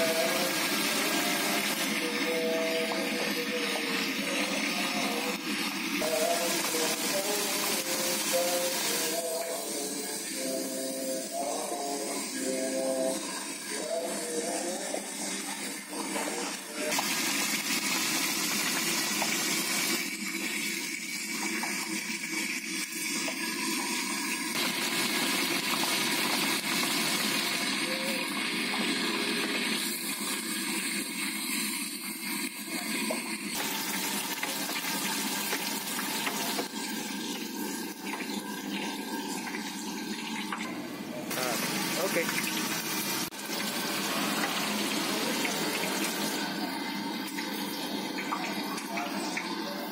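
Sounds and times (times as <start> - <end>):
tofu sizzling in hot oil: 16.9 - 40.5.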